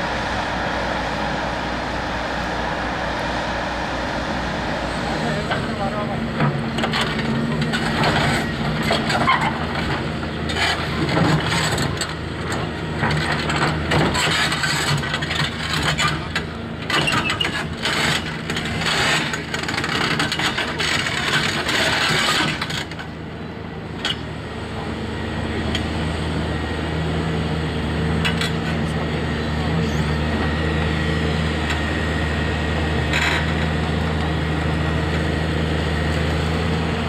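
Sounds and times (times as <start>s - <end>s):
diesel machinery engine running: 0.0s - 37.0s.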